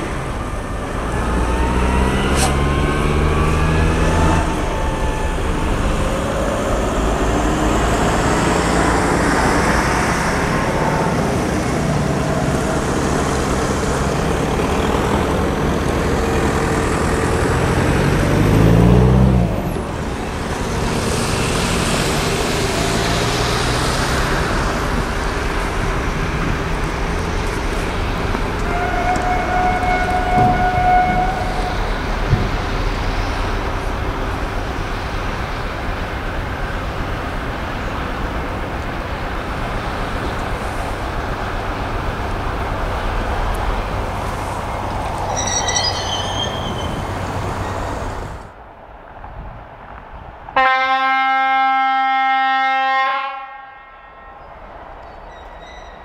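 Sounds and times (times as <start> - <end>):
vehicle engines passing: 0.0 - 50.6
steady tone: 43.8 - 48.5.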